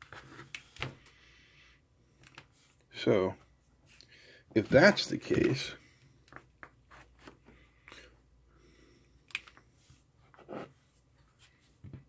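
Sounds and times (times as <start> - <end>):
cables clicking and rustling: 2.1 - 2.9, 9.2 - 9.7.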